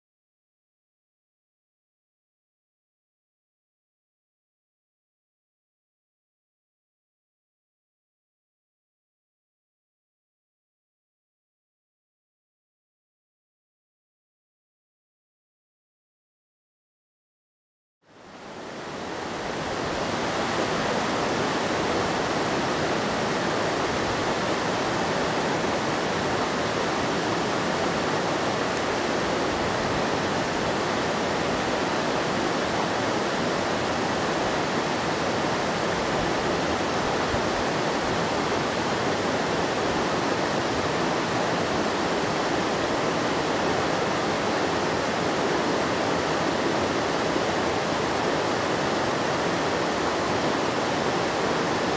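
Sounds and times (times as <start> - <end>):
river rushing over rocks: 18.2 - 51.9.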